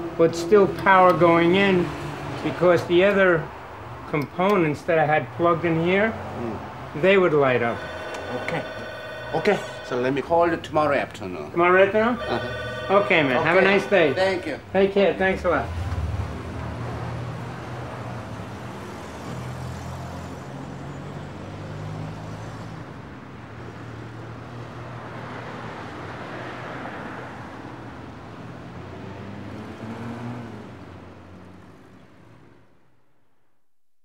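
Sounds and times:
car engines running: 0.0 - 19.5
tyres passing on road: 0.0 - 33.4.

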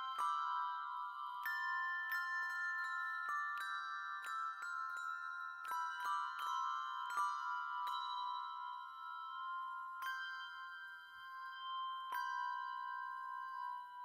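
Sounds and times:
handbells ringing chords: 0.0 - 14.0.

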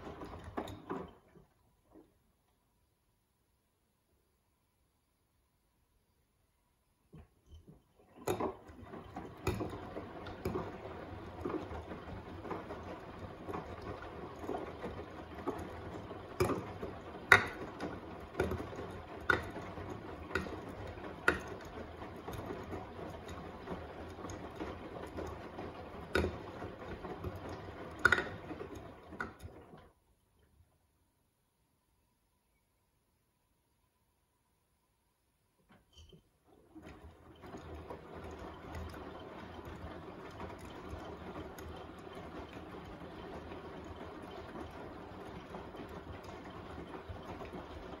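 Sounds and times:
washing machine knocking: 0.0 - 1.5, 8.0 - 29.8, 36.7 - 48.0
washing machine drum churning: 0.0 - 2.1, 7.2 - 30.0, 36.2 - 48.0.

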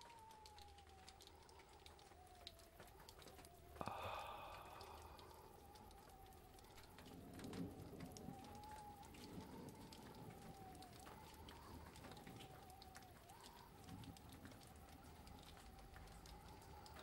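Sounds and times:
soft crackles: 0.0 - 17.0
low hum: 3.4 - 11.7.

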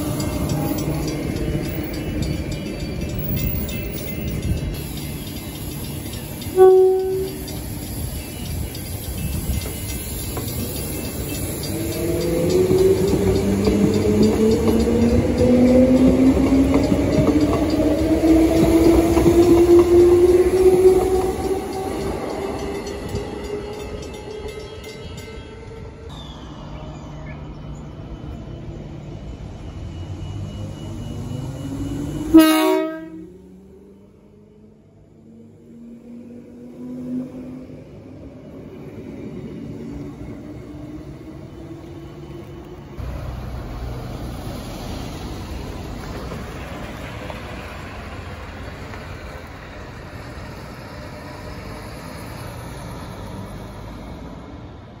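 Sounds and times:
bus driving off: 0.0 - 55.0
electric train rumble and whine: 0.0 - 55.0
train horn blast: 6.3 - 7.6, 32.2 - 33.4.

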